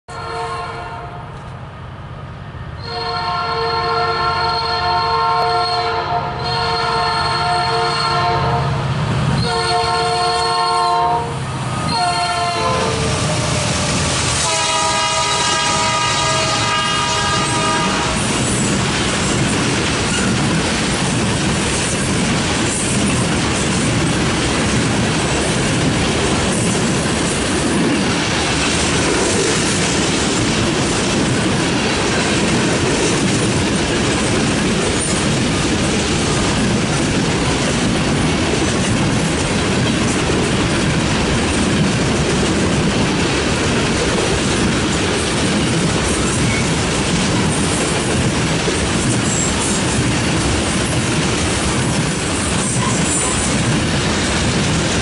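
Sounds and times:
locomotive air horn blasts: 0.1s - 1.3s, 2.8s - 8.8s, 9.4s - 18.3s
train wheels clacking on rail joints: 11.8s - 55.0s.

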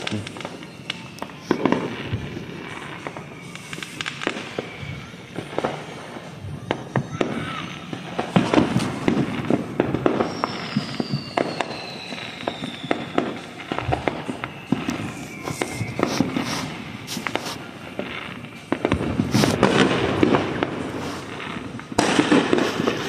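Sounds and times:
falling firework whistle: 0.0s - 23.0s
fireworks bangs and crackling: 0.0s - 23.0s.

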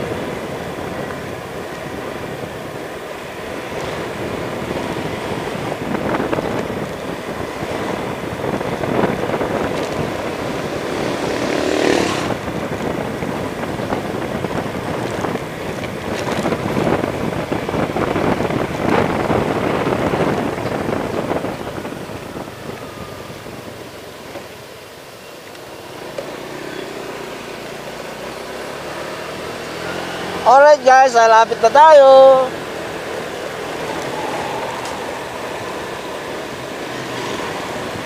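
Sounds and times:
wind buffeting microphone: 0.0s - 24.6s, 32.4s - 38.0s
scooter engine running: 0.0s - 38.0s.

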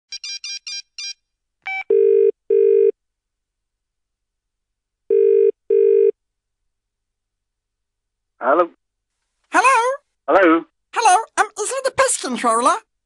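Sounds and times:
phone ringback tone: 1.7s - 2.9s, 5.1s - 6.1s.

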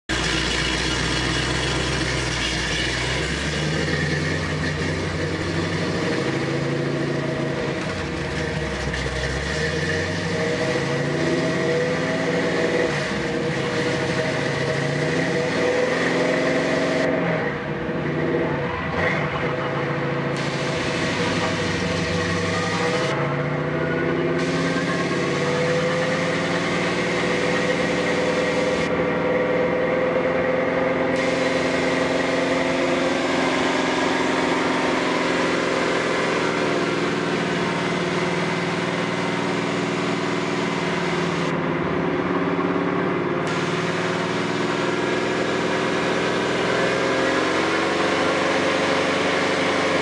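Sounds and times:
drive shaft spinning: 0.0s - 17.1s
car engine revving: 0.0s - 50.0s.

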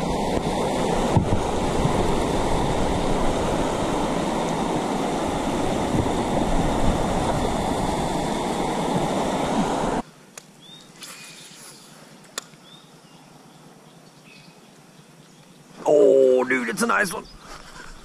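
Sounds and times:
water rushing over stones: 0.0s - 10.0s.

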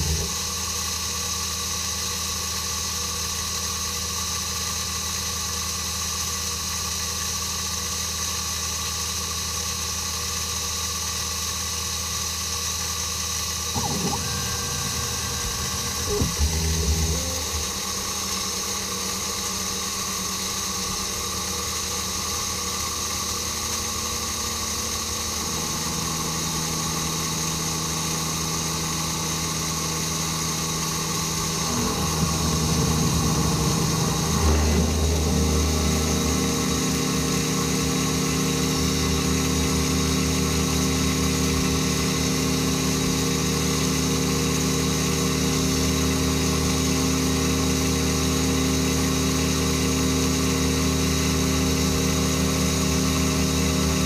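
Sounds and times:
milling machine hum: 0.0s - 0.6s, 13.5s - 54.0s.

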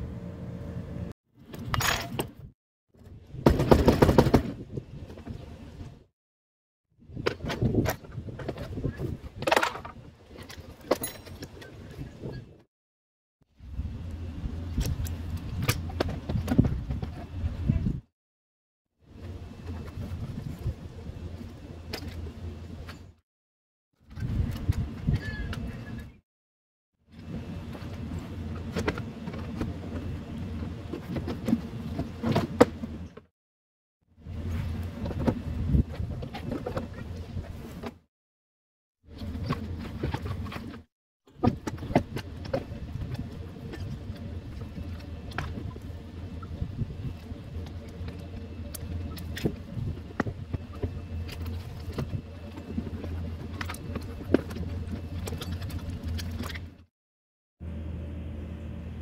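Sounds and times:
low buzzing hum: 0.0s - 6.0s, 13.6s - 18.0s, 19.0s - 23.2s, 34.2s - 37.9s, 39.1s - 56.9s, 57.6s - 59.0s.

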